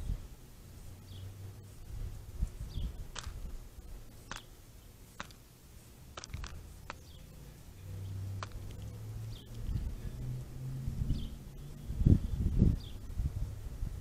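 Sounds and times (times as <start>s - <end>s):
bird bill clicking on plastic dish: 3.1s - 3.4s, 4.3s - 4.5s, 5.2s - 5.4s, 6.2s - 7.2s, 8.4s - 8.9s.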